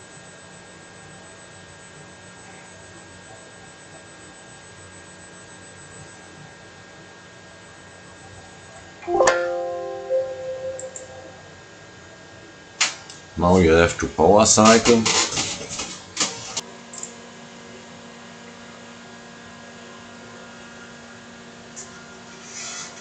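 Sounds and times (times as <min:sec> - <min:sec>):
computer warning chime: 0:09.1 - 0:11.4.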